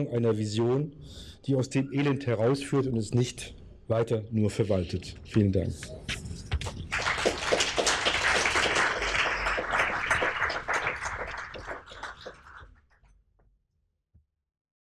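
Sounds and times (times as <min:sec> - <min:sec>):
audience applauding: 0:06.6 - 0:12.8.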